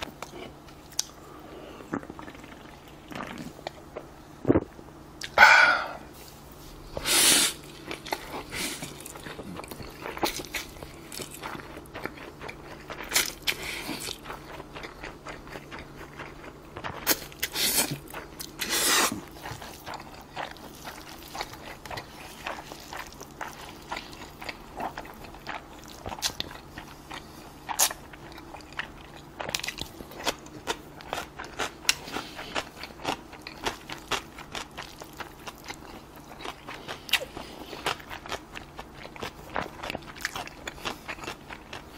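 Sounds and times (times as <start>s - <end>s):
wet chewing and lip smacks: 0.0s - 1.2s, 7.8s - 41.9s
noodle slurps: 18.6s - 19.3s.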